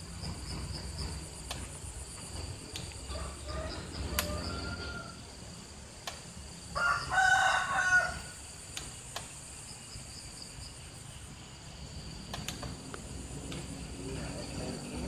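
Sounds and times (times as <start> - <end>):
insects chirring: 0.0 - 15.0
rooster crowing: 3.0 - 5.3, 6.8 - 8.5.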